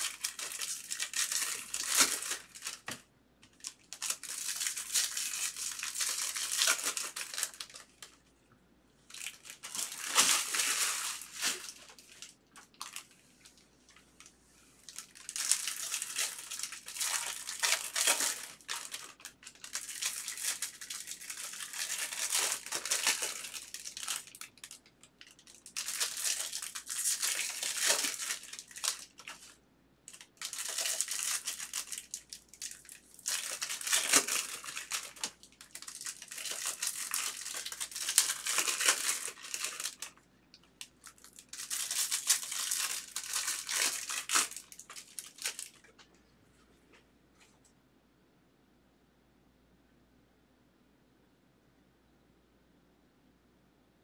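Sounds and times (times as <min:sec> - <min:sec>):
card packs being torn open: 0:00.0 - 0:08.1, 0:09.1 - 0:13.1, 0:14.9 - 0:29.5, 0:30.1 - 0:40.1, 0:40.9 - 0:45.9
plastic foil wrappers crinkling: 0:00.0 - 0:08.2, 0:09.1 - 0:40.2, 0:40.8 - 0:46.0.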